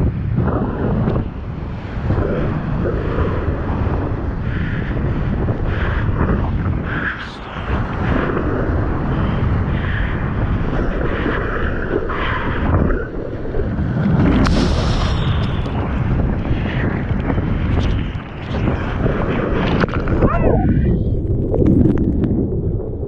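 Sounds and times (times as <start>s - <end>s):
water and wind rushing: 0.0s - 23.0s.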